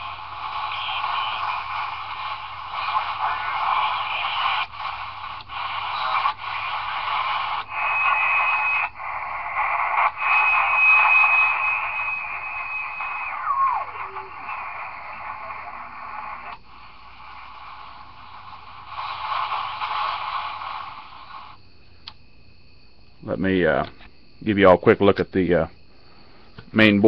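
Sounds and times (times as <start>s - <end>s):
high radio whistle: 0.0s - 21.6s
radio static hissing: 0.0s - 27.0s.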